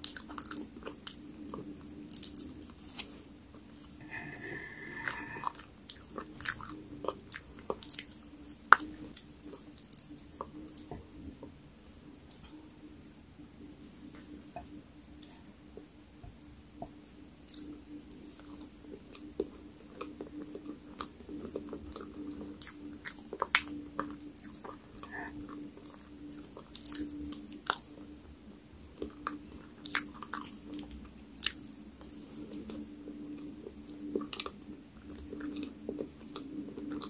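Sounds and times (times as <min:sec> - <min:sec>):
wet chewing sounds: 0:00.0 - 0:11.6, 0:17.4 - 0:28.2, 0:28.9 - 0:37.0.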